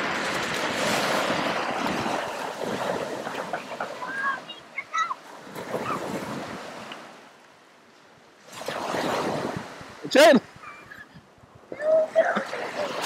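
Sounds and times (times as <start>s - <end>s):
waves washing up pebble beach: 0.0s - 7.2s, 8.4s - 10.2s.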